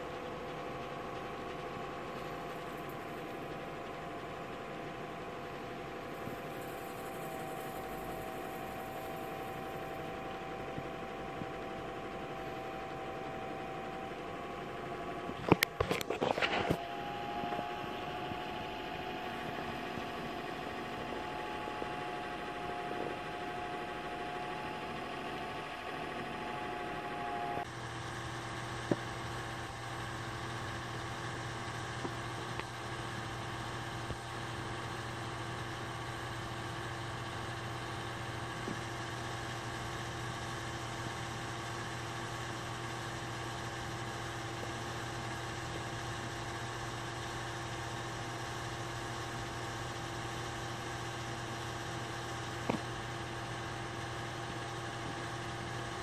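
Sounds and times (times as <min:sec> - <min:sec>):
sewing machine motor humming: 0:00.0 - 0:27.7.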